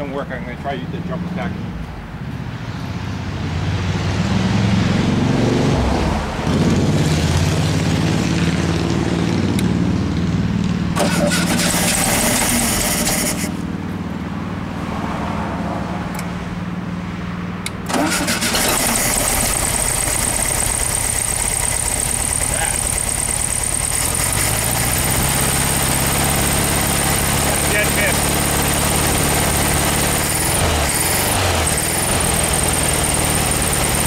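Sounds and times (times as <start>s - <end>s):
engine running rough: 6.4s - 14.6s, 17.6s - 34.0s
car engine cranking and starting: 10.9s - 13.6s, 17.7s - 34.0s.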